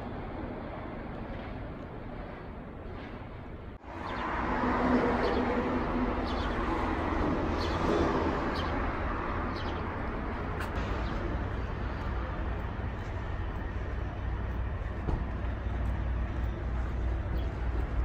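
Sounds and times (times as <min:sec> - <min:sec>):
traffic: 0:00.0 - 0:18.0
birds chirping: 0:07.5 - 0:13.8, 0:15.4 - 0:18.0.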